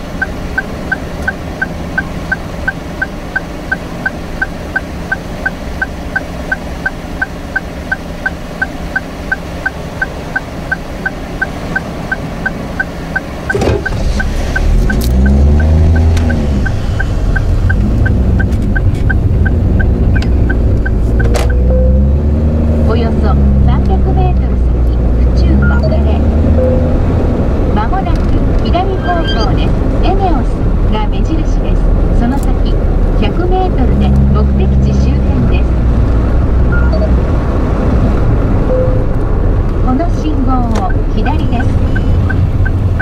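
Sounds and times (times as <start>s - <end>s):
turn signal ticking: 0.0s - 37.4s, 38.2s - 43.0s
car engine pulling away: 13.3s - 31.1s.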